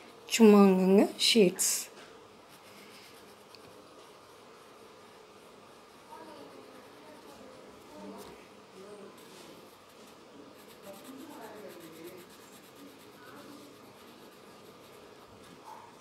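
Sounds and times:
pencil scratching on paper: 2.5s - 4.2s, 6.0s - 8.2s, 9.2s - 16.0s.

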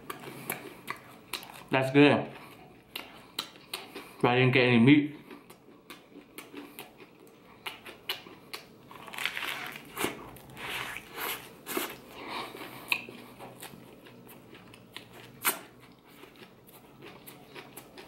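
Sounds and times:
chewing: 0.0s - 1.7s, 2.3s - 4.2s, 5.2s - 18.0s
bread crust crunching: 8.9s - 12.0s.

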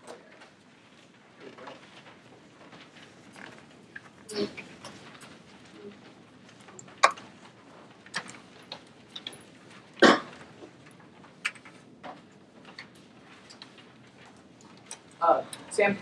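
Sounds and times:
paper being handled: 0.3s - 16.0s
laptop keys tapping: 2.8s - 15.2s.

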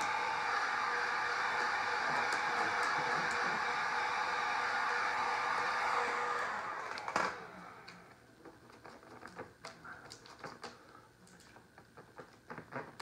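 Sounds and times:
heat gun blowing: 0.0s - 8.1s.

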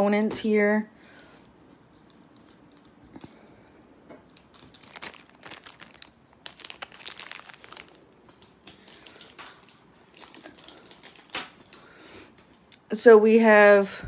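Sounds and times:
plastic bag crinkling: 1.8s - 3.4s, 4.2s - 12.8s.

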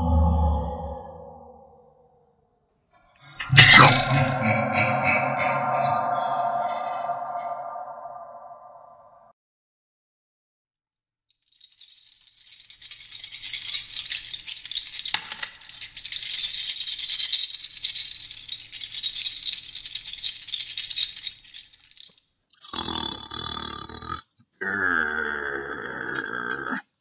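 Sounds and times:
pitched sound: 3.4s - 9.1s.

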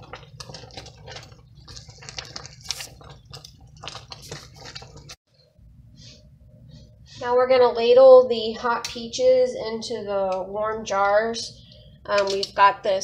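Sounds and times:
preserves bubbling and popping: 0.0s - 5.4s
wooden spoon stirring: 0.0s - 6.2s.

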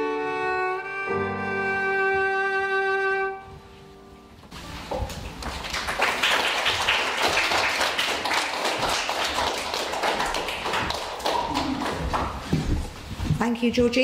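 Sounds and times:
audience applauding: 5.4s - 12.6s.

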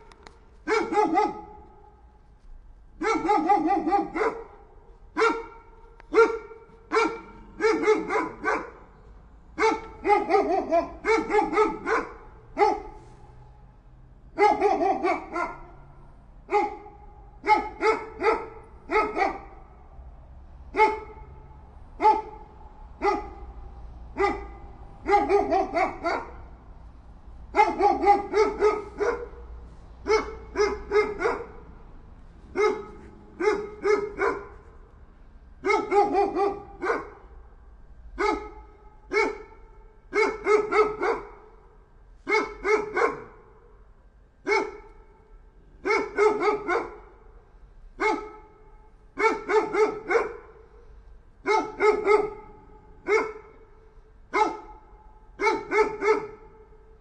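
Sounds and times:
dog barking: 0.6s - 2.0s, 3.0s - 9.0s, 9.6s - 13.0s, 14.3s - 19.7s, 20.7s - 26.5s, 27.5s - 31.7s, 32.5s - 34.8s, 35.6s - 37.4s, 38.1s - 43.8s, 44.4s - 45.2s, 45.8s - 47.3s, 48.0s - 50.8s, 51.4s - 56.9s.

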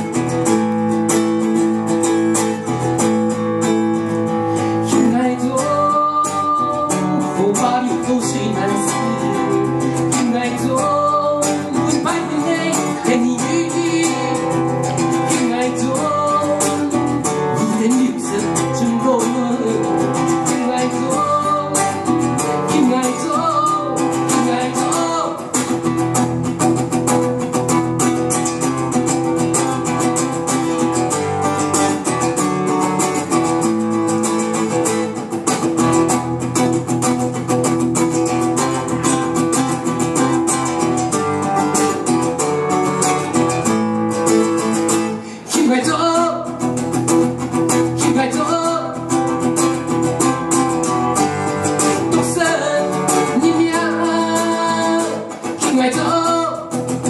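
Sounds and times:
guitar picked and strummed: 0.0s - 57.0s
man singing: 4.0s - 26.3s, 43.0s - 57.0s.

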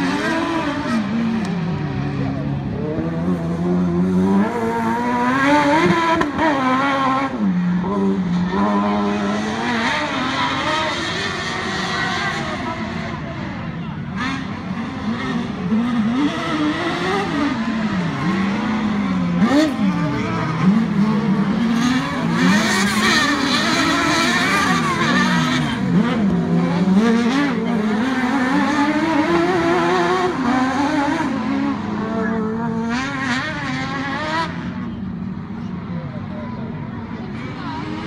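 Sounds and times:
race car engines revving: 0.0s - 38.0s.

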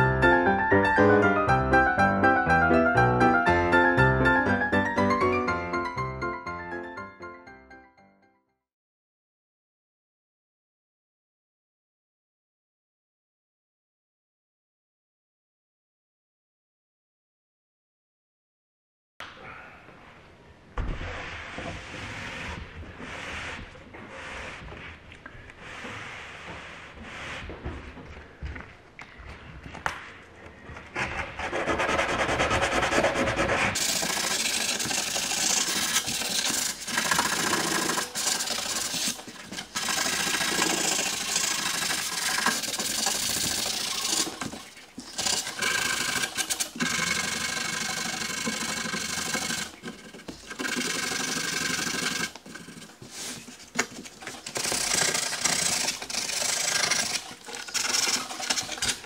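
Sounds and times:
sanding pad rubbing wood panel: 21.0s - 27.9s, 31.0s - 59.0s.

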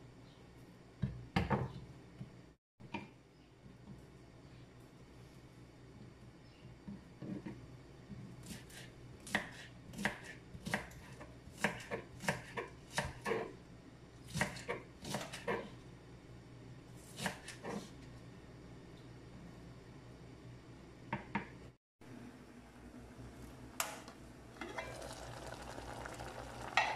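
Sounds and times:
knife chopping on wooden board: 11.6s - 13.4s.

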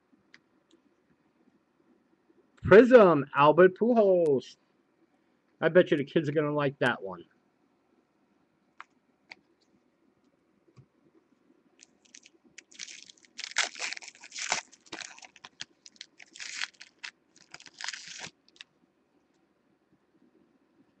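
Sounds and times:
foil wrapper crinkling and tearing: 11.8s - 18.7s.

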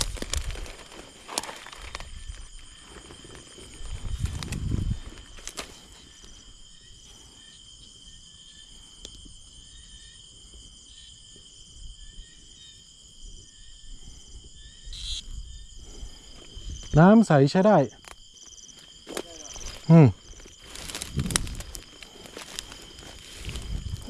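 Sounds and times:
insects trilling: 0.0s - 24.0s
low rustling thumps: 20.8s - 21.9s, 22.8s - 24.0s.

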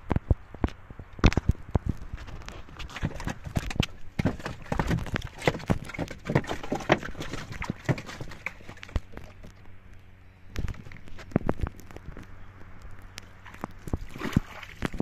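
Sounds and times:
water splashing: 2.8s - 9.5s, 13.2s - 15.0s.

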